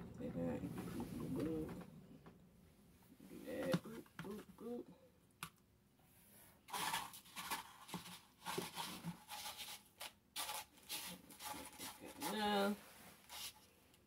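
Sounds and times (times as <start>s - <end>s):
faint scratchy rustles: 6.1s - 13.8s.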